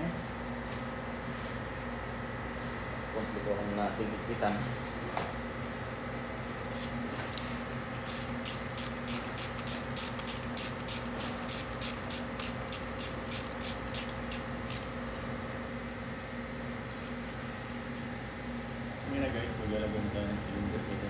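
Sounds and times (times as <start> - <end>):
ratchet wrench clicking: 6.7 - 7.0, 8.0 - 14.9.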